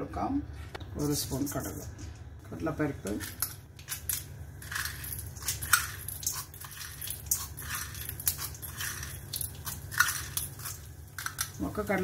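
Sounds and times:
seeds popping in hot oil: 3.2 - 12.0.

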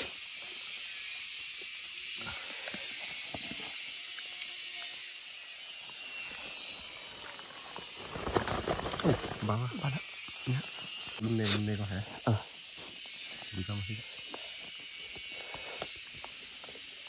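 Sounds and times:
forest ambience hiss: 0.0 - 17.0
leaves rustling: 5.6 - 11.2.

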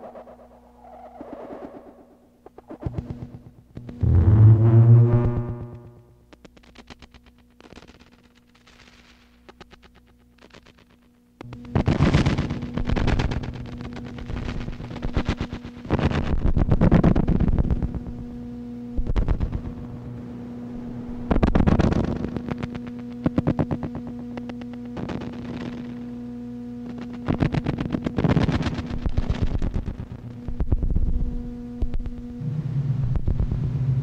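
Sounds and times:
deep drone: 0.0 - 8.2, 11.4 - 34.0
stuttering electronic pulses: 0.0 - 8.3, 20.9 - 26.0, 26.8 - 32.4
electronic hum: 0.0 - 34.0.

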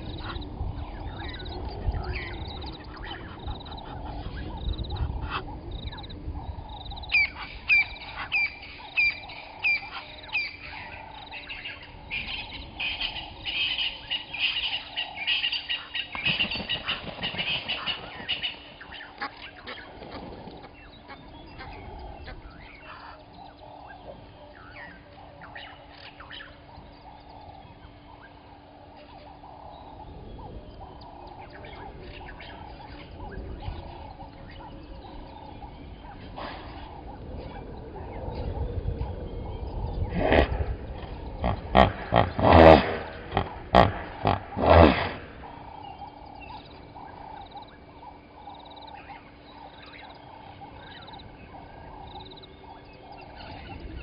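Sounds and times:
wild birds calling: 0.0 - 54.0.

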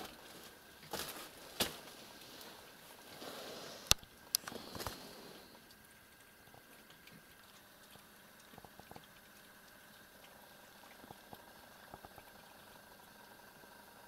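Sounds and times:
room hiss: 0.0 - 5.8
cats chewing food: 0.0 - 13.4.

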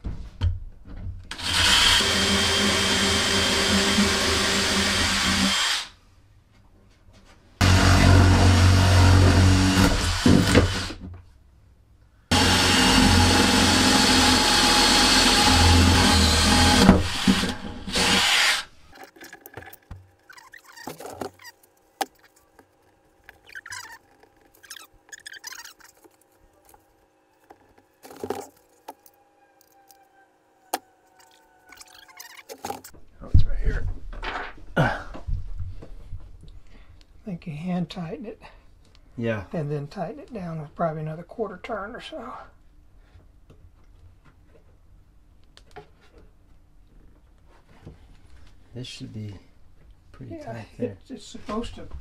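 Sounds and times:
electric motor tool running: 1.3 - 5.9, 7.6 - 10.9, 12.3 - 18.7.

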